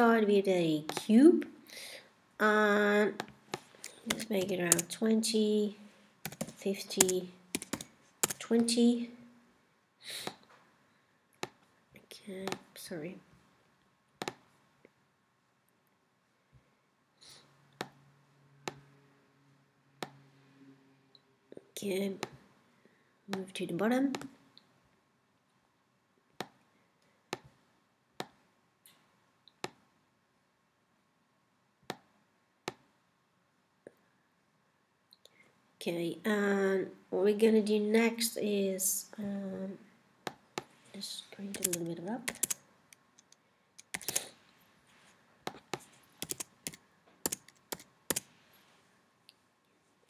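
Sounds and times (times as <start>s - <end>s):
computer mouse clicking: 3.2s - 5.0s, 6.2s - 8.5s, 41.5s - 44.3s, 45.5s - 48.3s
keyboard keystrokes: 3.5s - 4.9s, 6.3s - 8.5s, 41.5s - 42.6s, 43.2s - 44.2s, 46.2s - 48.3s.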